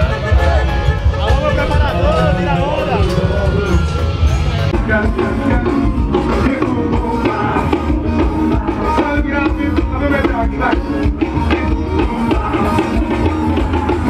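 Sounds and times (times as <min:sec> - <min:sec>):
loud music with drum beat: 0:00.0 - 0:14.0
person singing: 0:03.0 - 0:14.0.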